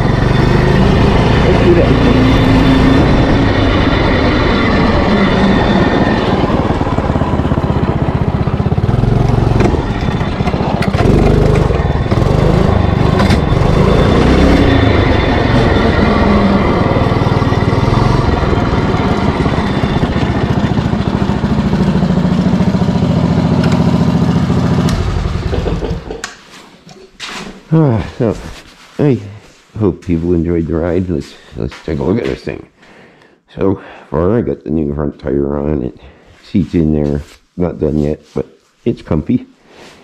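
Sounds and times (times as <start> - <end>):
engine revving and idling: 0.0 - 26.2.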